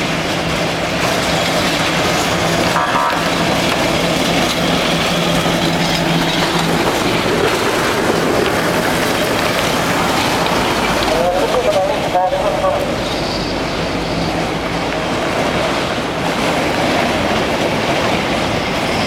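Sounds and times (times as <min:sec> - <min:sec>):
tram wheels rumbling on rails: 0:00.0 - 0:19.0.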